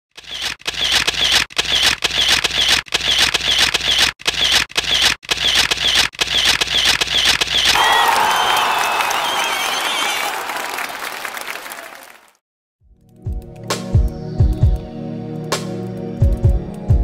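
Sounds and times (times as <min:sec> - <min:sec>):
camera shutter clicking rapidly: 0:00.2 - 0:07.7.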